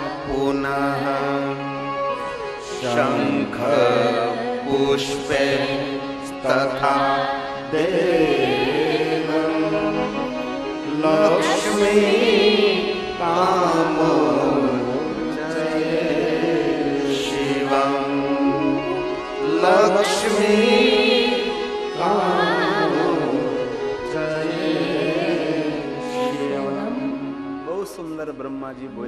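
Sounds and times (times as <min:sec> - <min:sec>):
sustained instrumental accompaniment: 0:00.0 - 0:29.0
man chanting: 0:02.7 - 0:05.7, 0:10.9 - 0:12.4.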